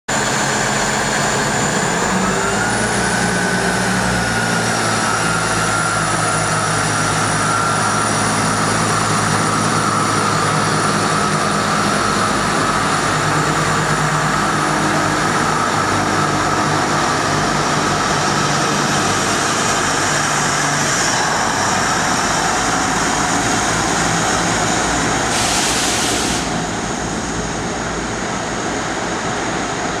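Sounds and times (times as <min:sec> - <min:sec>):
diesel train engine with whine: 0:00.1 - 0:30.0
short burst of hiss: 0:25.3 - 0:26.6.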